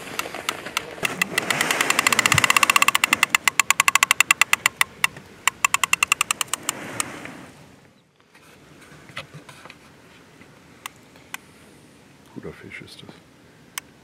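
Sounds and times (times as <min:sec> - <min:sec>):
fishing reel clicking rapidly: 0:01.1 - 0:06.7.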